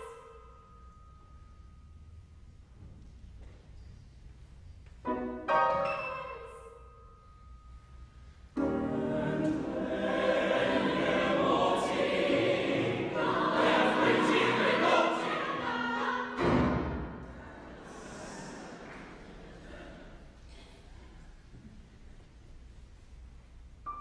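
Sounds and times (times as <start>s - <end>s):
choir singing in a church: 8.5s - 20.4s.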